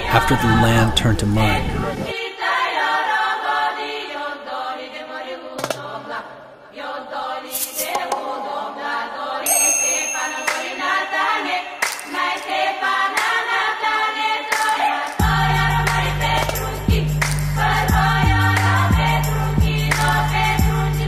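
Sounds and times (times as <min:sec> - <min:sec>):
choir-like voices holding chords: 0:00.0 - 0:09.5, 0:10.1 - 0:21.0
deep bass: 0:15.2 - 0:21.0.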